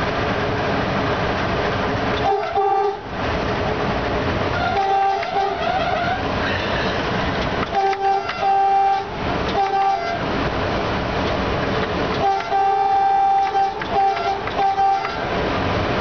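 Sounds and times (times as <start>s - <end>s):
train rumbling on rails: 0.0s - 16.0s
locomotive horn blasts: 2.2s - 3.1s, 4.5s - 6.3s, 7.7s - 10.3s, 12.2s - 15.4s.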